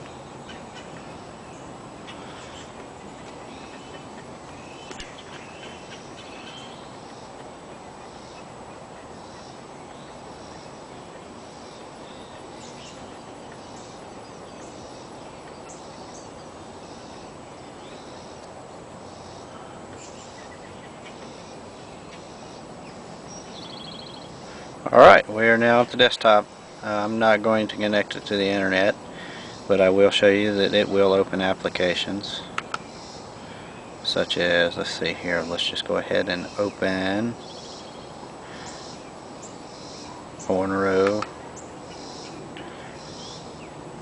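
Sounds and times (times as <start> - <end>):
faint bird chirps: 0.0 - 25.0, 32.0 - 43.8
steady background noise: 0.0 - 44.0.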